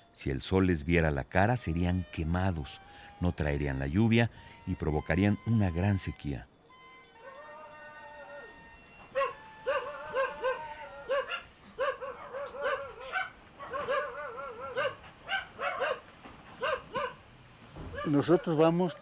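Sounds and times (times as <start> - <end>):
dog barking high: 9.1 - 17.2, 17.8 - 18.6.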